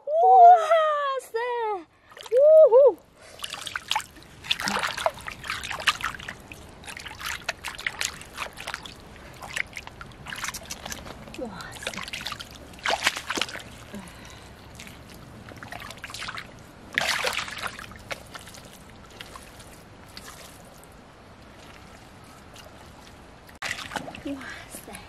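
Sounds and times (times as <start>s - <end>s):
muddy water splashing: 2.0s - 25.0s
hands digging in mud: 4.4s - 24.3s.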